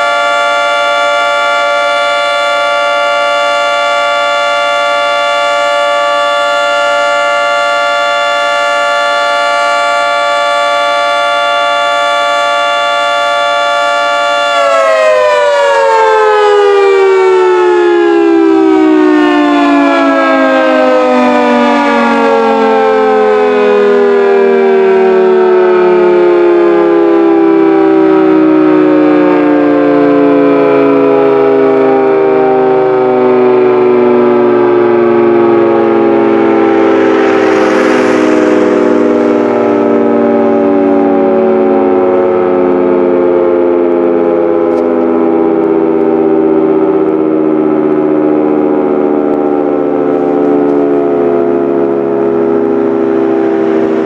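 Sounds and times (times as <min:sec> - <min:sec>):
warning siren winding down: 0:00.0 - 0:54.0.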